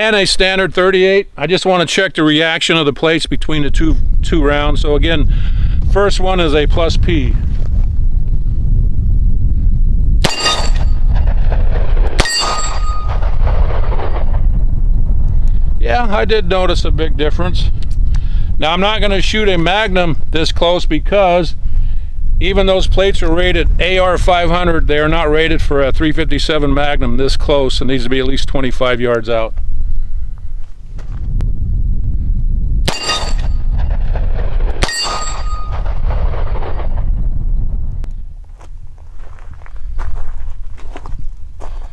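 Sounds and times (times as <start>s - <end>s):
wind rumbling on microphone: 0.0s - 41.9s
steel plate ringing: 10.2s - 11.1s, 12.2s - 13.3s, 32.9s - 33.8s, 34.8s - 36.0s.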